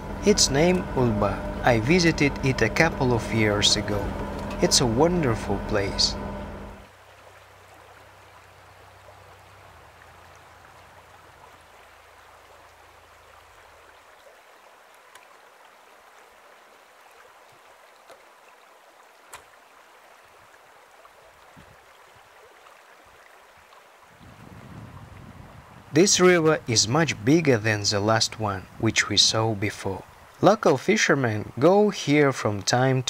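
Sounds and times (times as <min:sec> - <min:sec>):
low hum: 0:00.0 - 0:06.9
rushing outdoor ambience: 0:00.0 - 0:13.4, 0:25.5 - 0:30.6.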